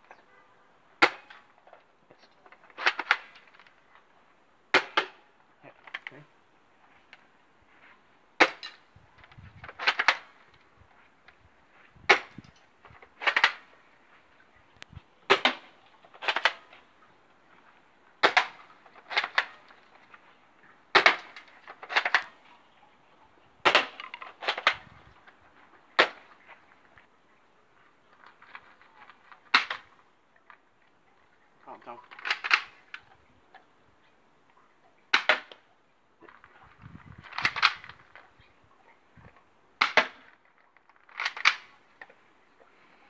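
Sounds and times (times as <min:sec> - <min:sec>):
bb rifle cracks: 0:02.4 - 0:03.8, 0:08.4 - 0:10.6, 0:12.1 - 0:13.8, 0:15.3 - 0:16.8, 0:18.2 - 0:20.2, 0:20.9 - 0:22.4, 0:23.6 - 0:24.9, 0:26.0 - 0:26.4, 0:28.2 - 0:30.6, 0:32.0 - 0:33.1, 0:35.1 - 0:35.6, 0:37.2 - 0:38.2, 0:39.8 - 0:42.2.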